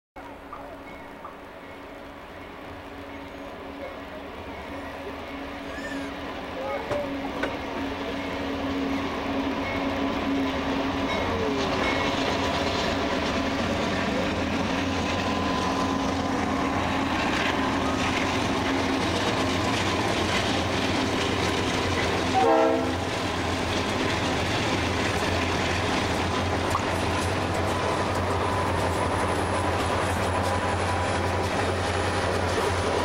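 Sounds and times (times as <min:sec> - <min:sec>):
diesel locomotive engines running: 0:00.2 - 0:33.0
train wheels rumbling on rails: 0:00.2 - 0:33.0
train horn blast: 0:22.2 - 0:23.2.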